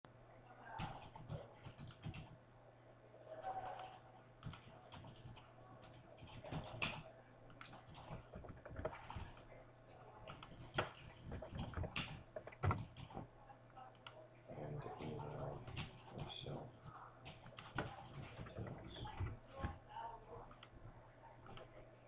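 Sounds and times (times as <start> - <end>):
faint low hum: 0.1 - 22.0
keyboard and mouse clicking: 3.6 - 9.4, 10.3 - 13.3.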